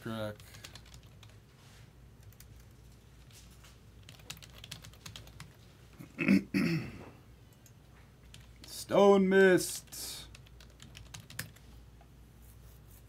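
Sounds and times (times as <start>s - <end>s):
typing on computer keyboard: 0.4s - 1.3s, 4.0s - 5.6s, 7.6s - 8.8s, 10.3s - 11.6s.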